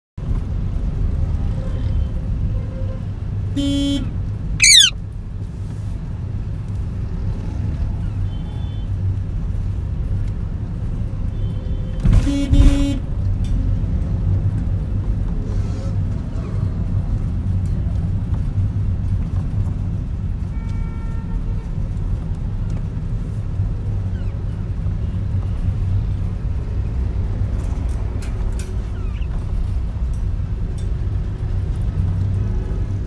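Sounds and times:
car engine and road rumble: 0:00.2 - 0:33.0
vehicle horn honking: 0:03.6 - 0:04.0, 0:04.6 - 0:04.9
parakeet screech: 0:04.6 - 0:05.0.

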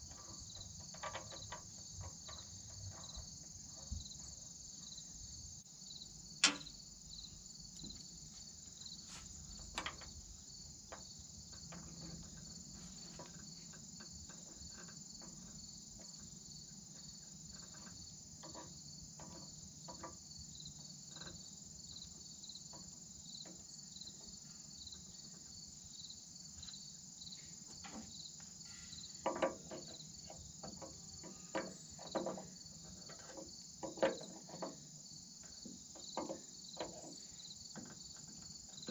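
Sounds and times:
metal fittings clicking and knocking: 0:00.0 - 0:03.3, 0:06.4 - 0:06.8, 0:09.5 - 0:10.2, 0:29.2 - 0:34.8
insect chorus: 0:00.0 - 0:38.9.

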